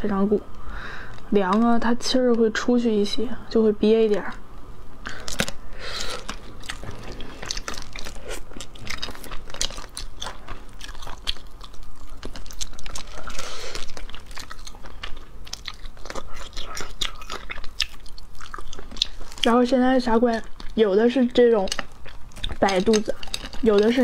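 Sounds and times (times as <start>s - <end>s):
shells cracking and crunching: 5.0s - 19.5s, 21.5s - 24.0s
wet chewing and sucking: 5.0s - 24.0s.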